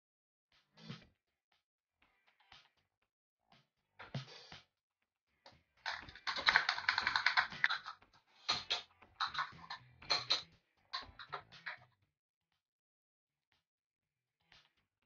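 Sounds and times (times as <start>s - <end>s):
plastic toy cookware clattering: 5.9s - 10.4s, 11.0s - 11.5s.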